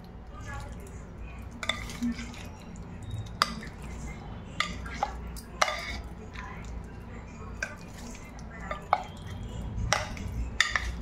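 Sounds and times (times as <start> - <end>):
spoon stirring in plastic tub: 0.4 - 11.0
spoon clicking and scraping: 1.4 - 6.7, 7.6 - 11.0.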